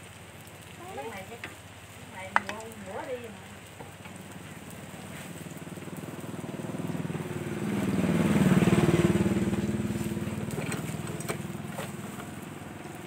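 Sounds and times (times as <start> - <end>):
fritters sizzling in hot oil: 0.0 - 13.0
motorbike passing by: 4.2 - 13.0.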